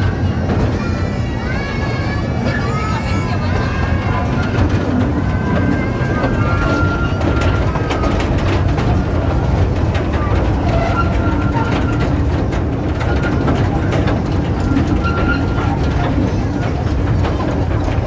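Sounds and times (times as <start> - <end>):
faint children's voices: 0.0 - 18.0
ride vehicle rumbling: 0.0 - 18.0
frame rattling: 4.2 - 18.0.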